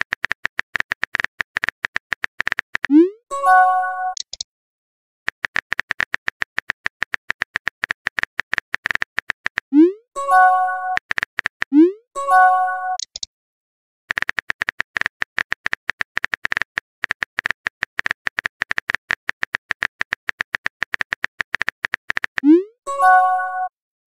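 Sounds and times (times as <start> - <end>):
keyboard typing clicks: 0.0 - 3.1, 3.8 - 4.4, 5.3 - 13.3, 14.1 - 23.7
message chime: 3.3 - 4.2, 10.2 - 11.0, 12.2 - 13.0, 22.9 - 23.8.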